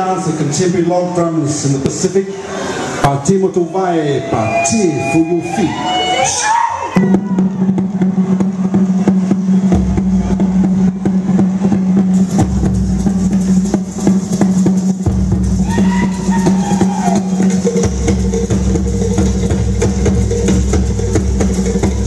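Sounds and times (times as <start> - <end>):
deep bass drum: 7.0 - 22.0.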